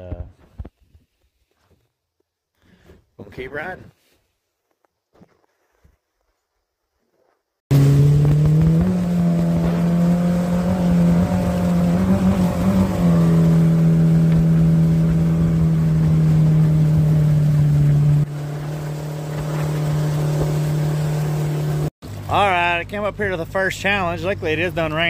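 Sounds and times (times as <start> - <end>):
outboard jet motor running: 7.7 - 25.0.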